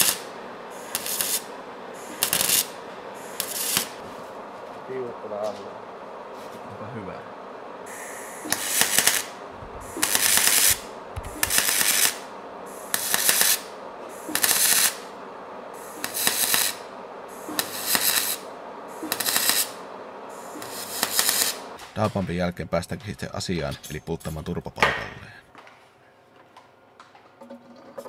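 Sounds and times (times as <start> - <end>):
arc welding crackling hiss: 0.0 - 22.1.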